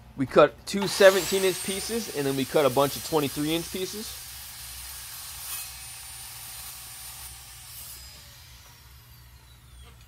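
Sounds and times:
saw blade spinning down whine: 0.8s - 4.3s, 5.5s - 10.0s.

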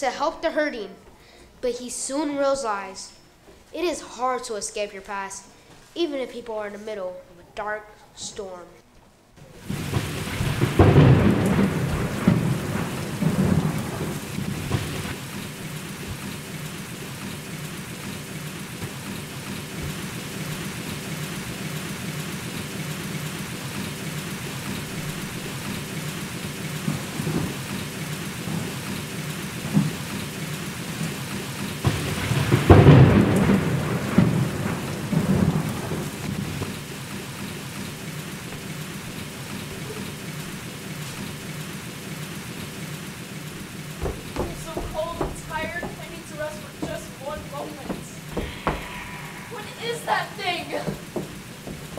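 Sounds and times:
heavy rain: 9.4s - 51.9s
rolling thunder: 9.6s - 30.2s, 30.8s - 40.6s, 43.6s - 51.9s.

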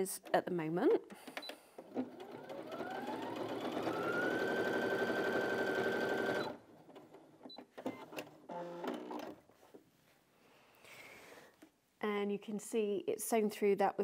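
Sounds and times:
sewing machine stitching: 1.4s - 9.4s.

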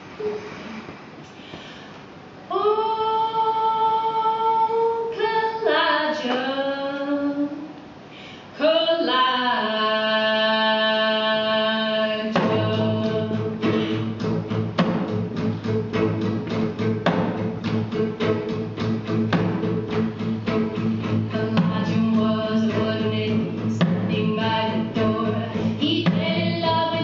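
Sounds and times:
person singing: 8.6s - 14.2s, 20.8s - 27.0s
bass: 10.8s - 27.0s
drum beat: 12.4s - 13.3s, 14.2s - 20.7s.

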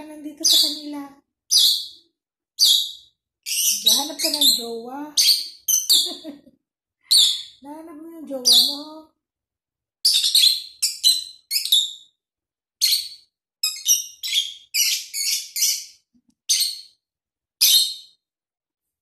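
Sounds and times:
parrot chirping: 0.0s - 6.4s, 7.0s - 7.6s, 8.3s - 9.0s, 10.0s - 12.2s, 12.8s - 17.0s, 17.6s - 18.2s.

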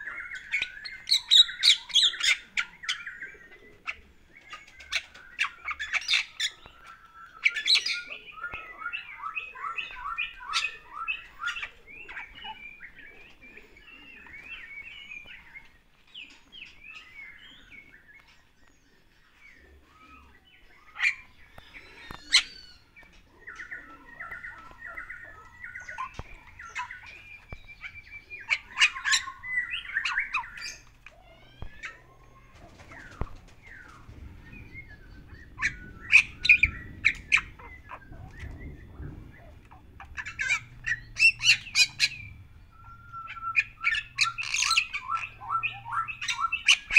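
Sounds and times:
bird chattering and whistling: 20.0s - 32.1s, 32.8s - 46.9s.

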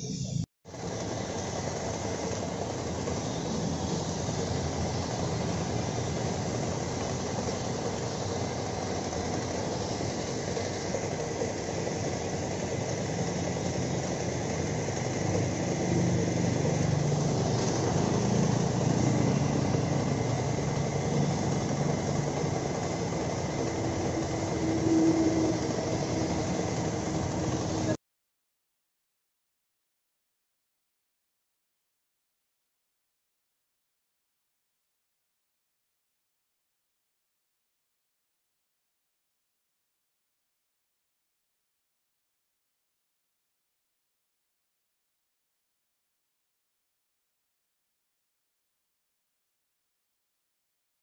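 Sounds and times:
motor hum: 0.0s - 28.0s.

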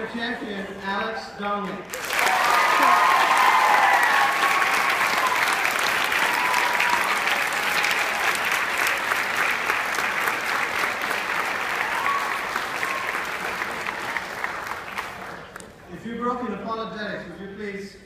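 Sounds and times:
audience applauding: 1.9s - 15.8s.

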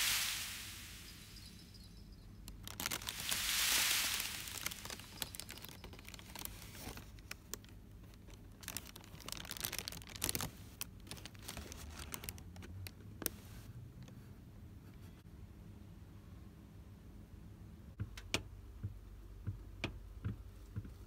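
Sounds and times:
rustling and crinkling: 0.0s - 14.2s.

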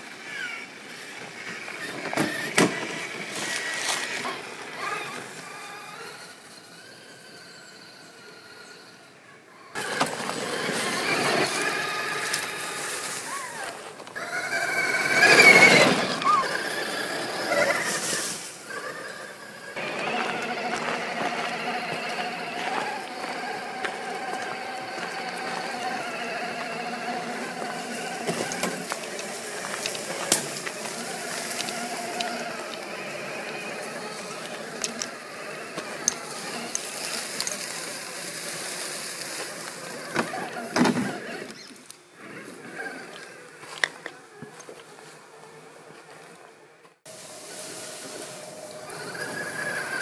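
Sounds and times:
electric motor and gear whine: 0.0s - 50.0s
leaves crunching: 3.0s - 4.2s, 9.8s - 16.1s, 19.8s - 40.7s
loud crunch: 19.7s - 41.6s.

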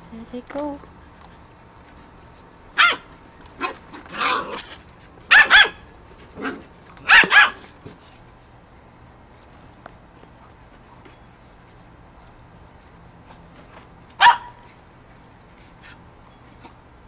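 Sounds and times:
puppy barking: 2.8s - 4.5s, 5.3s - 5.8s, 6.4s - 7.6s, 14.2s - 14.7s.

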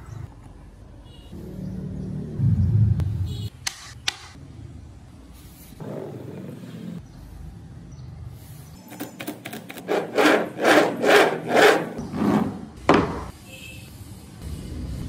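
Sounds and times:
wooden wheels rolling on tabletop: 9.0s - 13.1s.

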